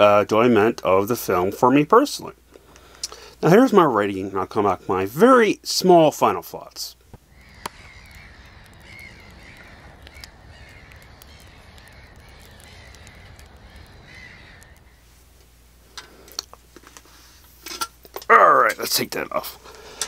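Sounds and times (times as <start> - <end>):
outdoor ambience: 0.0 - 20.0
sharp clicks: 7.0 - 14.9
crow cawing: 7.3 - 15.0.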